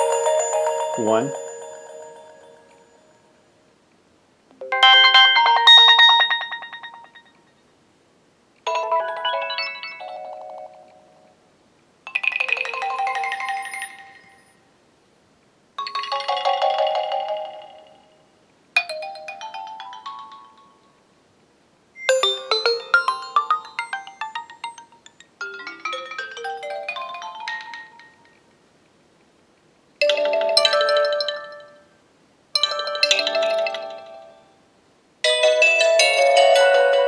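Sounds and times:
phone ringtone chiming melodies: 0.0 - 3.3, 4.6 - 7.4, 8.7 - 11.2, 12.1 - 14.5, 15.8 - 17.9, 19.0 - 20.9, 22.0 - 28.3, 30.0 - 31.8, 32.6 - 34.4, 35.3 - 37.0.

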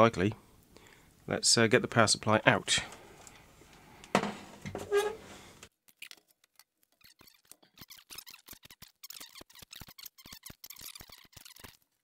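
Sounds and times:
screwdriver clicks and squeaks: 5.9 - 12.0.

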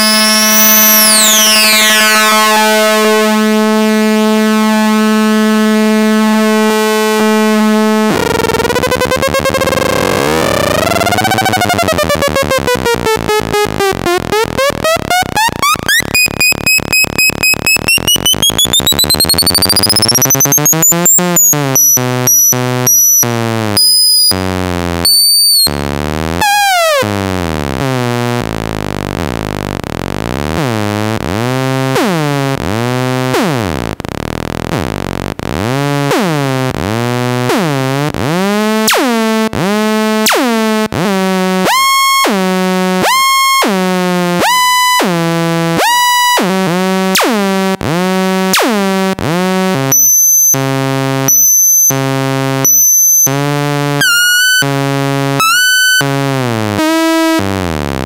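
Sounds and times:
synthesizer falling pitch sweeps: 0.0 - 24.5.

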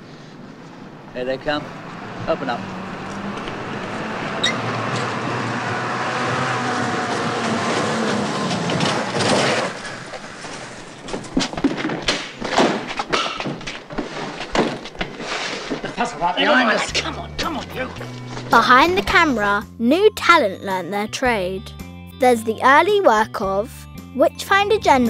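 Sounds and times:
lorry engine running: 0.4 - 11.1, 16.6 - 19.4
knocks and thumps of people climbing: 6.9 - 18.6.

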